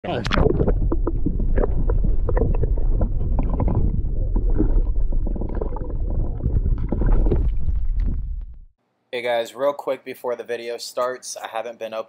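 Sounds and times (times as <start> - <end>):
muffled underwater rumble: 0.0 - 8.7
water sloshing: 0.3 - 8.4.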